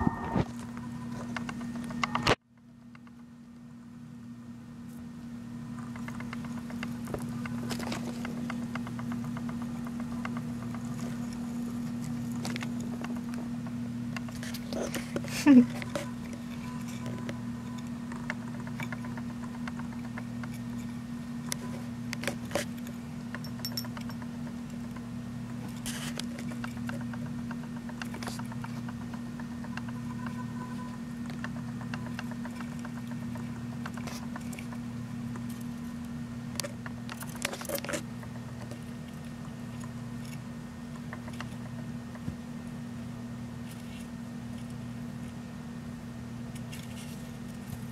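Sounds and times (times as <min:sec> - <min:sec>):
low electrical hum: 0:00.0 - 0:47.9.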